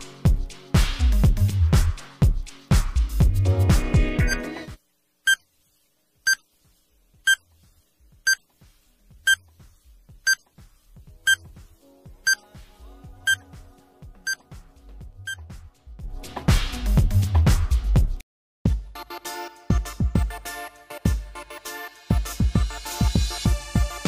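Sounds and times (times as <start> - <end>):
quiet background music: 3.4 - 4.8, 7.0 - 16.5
short electronic beeps: 7.3 - 7.5, 9.3 - 9.5, 11.3 - 11.5.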